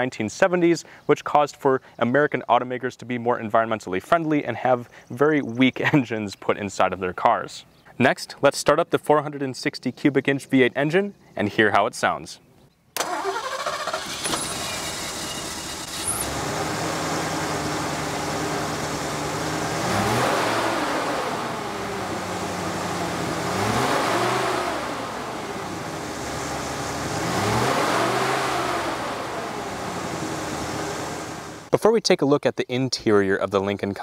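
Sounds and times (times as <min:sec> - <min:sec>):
car engine idling and revving: 0:13.2 - 0:31.7.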